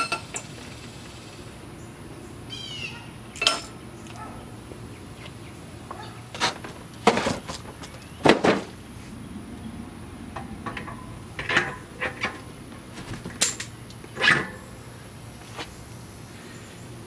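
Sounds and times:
bicycle wheel knocks and clunks: 0:10.4 - 0:14.6
metal parts bumping frame: 0:10.4 - 0:14.7.

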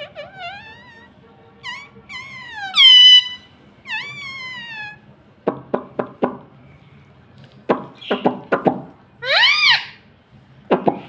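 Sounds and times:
parrot whistled calls: 0:00.0 - 0:05.0, 0:09.2 - 0:10.0.

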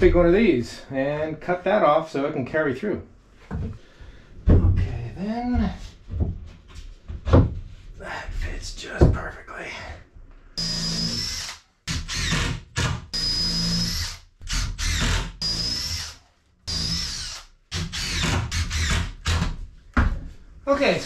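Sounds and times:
cordless drill whining: 0:10.6 - 0:19.4.

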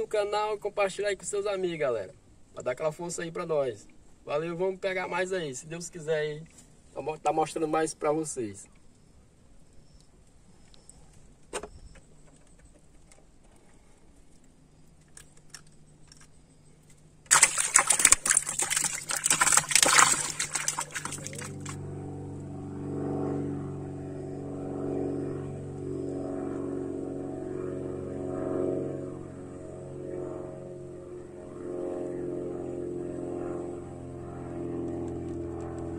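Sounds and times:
small boat engine droning: 0:17.3 - 0:35.9.

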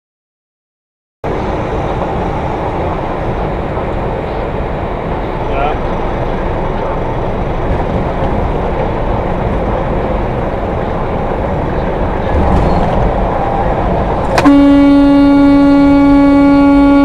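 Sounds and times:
truck road and engine noise: 0:01.2 - 0:17.0
loud long truck horn blast: 0:14.4 - 0:17.0.

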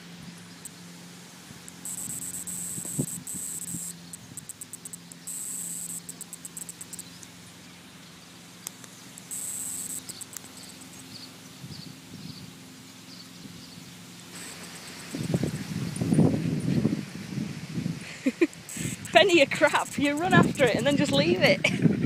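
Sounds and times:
high clicking buzzes: 0:00.0 - 0:11.3, 0:14.3 - 0:16.3, 0:18.4 - 0:21.5.

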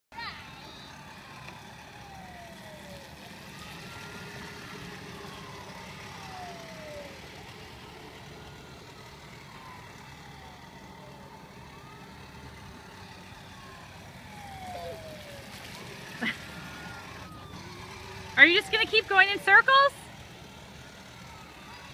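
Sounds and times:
toy fire truck siren wailing: 0:00.5 - 0:21.9.

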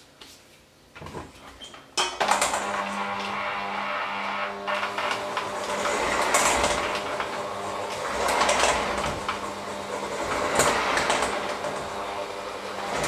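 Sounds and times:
electric hand mixer whining: 0:02.2 - 0:13.0.

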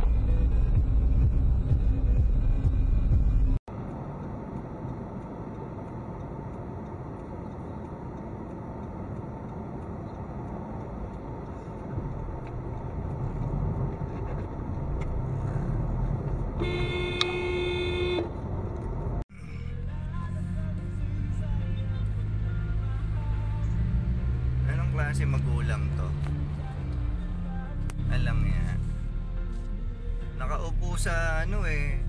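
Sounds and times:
car road and engine noise: 0:00.0 - 0:32.0
car horn blast: 0:16.6 - 0:18.4.

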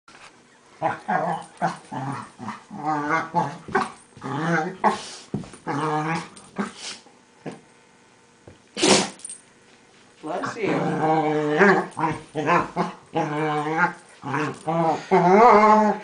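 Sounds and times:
dogs growling and yelping: 0:00.5 - 0:07.6, 0:10.5 - 0:16.0.

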